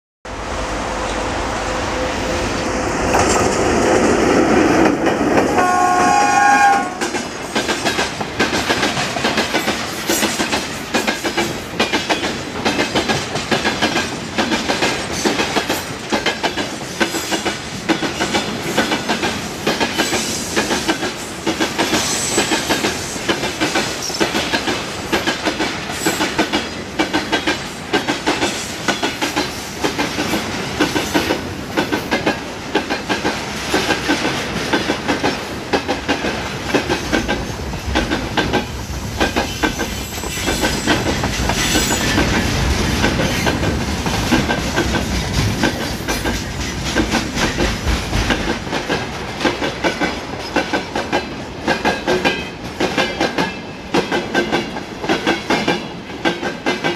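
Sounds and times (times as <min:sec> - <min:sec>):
electric locomotive passing: 0:00.3 - 0:56.9
locomotive horn: 0:05.5 - 0:07.1
wheels clacking over rail joints: 0:06.9 - 0:56.9.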